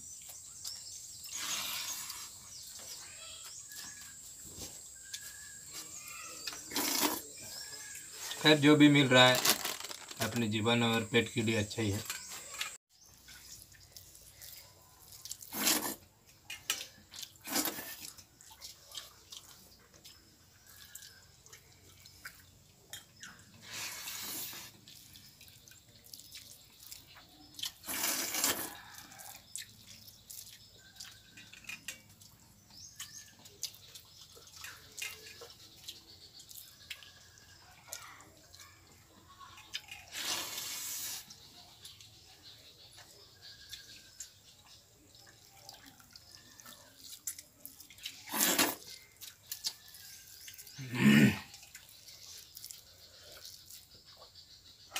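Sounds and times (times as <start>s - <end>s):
water dripping: 10.2s - 23.6s, 24.7s - 27.9s, 28.7s - 40.1s, 41.3s - 54.9s
loud wet bursts: 27.7s - 28.8s.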